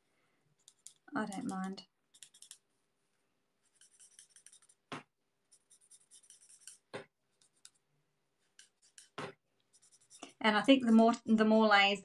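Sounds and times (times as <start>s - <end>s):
marker scratching on paper: 0.6s - 2.7s, 3.6s - 7.8s, 8.4s - 11.0s.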